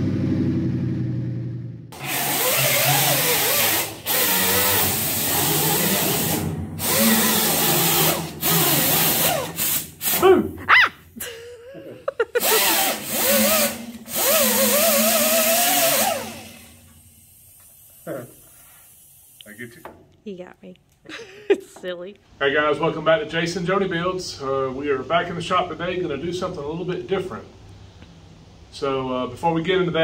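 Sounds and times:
power tool revving: 1.9s - 10.3s, 12.4s - 17.0s.

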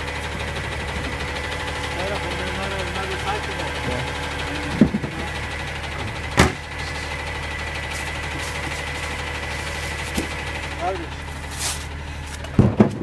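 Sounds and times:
garbage truck engine running: 0.0s - 13.0s
plastic carts knocking: 12.5s - 13.0s.

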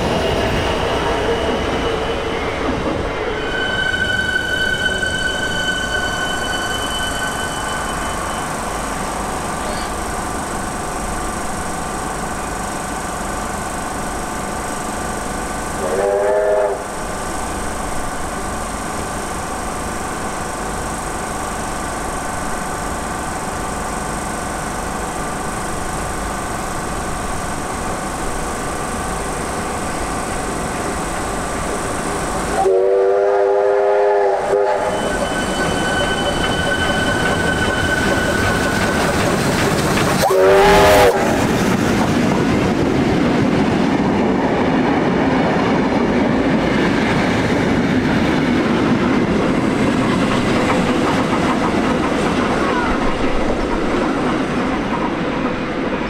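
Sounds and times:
steam locomotive running: 0.0s - 56.0s
steam whistle blasts: 3.4s - 8.8s, 15.8s - 17.0s, 32.6s - 38.9s, 40.2s - 41.5s
train wheels clacking over rail joints: 34.9s - 56.0s.

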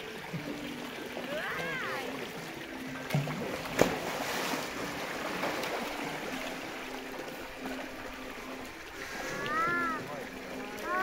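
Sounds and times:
water sloshing: 0.3s - 11.0s
sharp splash: 3.1s - 5.9s.

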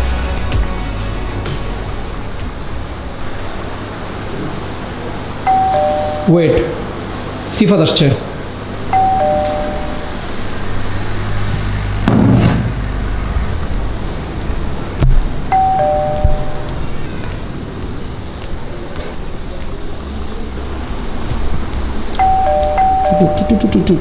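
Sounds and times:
two-tone doorbell chime: 5.4s - 6.7s, 8.9s - 10.3s, 15.5s - 16.8s, 22.2s - 23.7s.

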